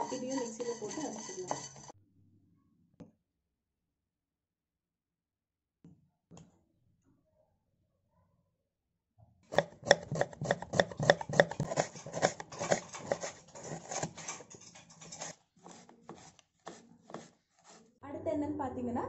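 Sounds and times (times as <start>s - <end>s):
knife slicing onion on board: 9.5s - 14.2s, 15.1s - 17.8s.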